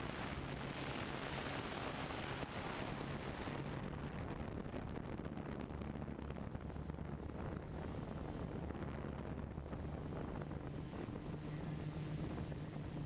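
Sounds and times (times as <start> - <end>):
wind rush on microphone: 0.0 - 13.0
drone motors humming: 3.8 - 13.0.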